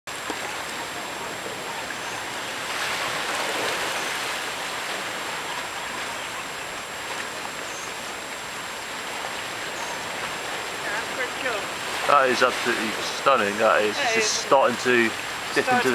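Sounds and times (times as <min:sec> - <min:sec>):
sea washing against rocks: 0:00.1 - 0:15.9.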